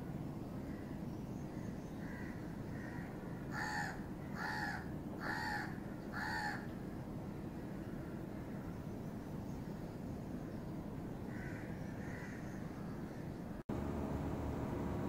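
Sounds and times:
crow cawing: 2.0s - 6.7s, 11.3s - 13.0s.

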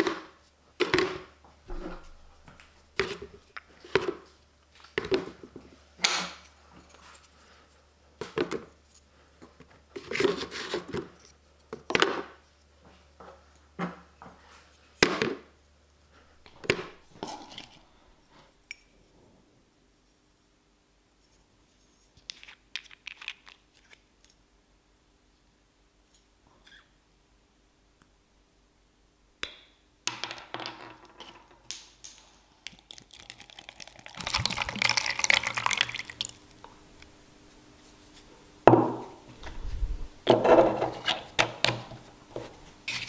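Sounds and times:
wooden blocks knocking in plastic bucket: 0.0s - 2.2s.

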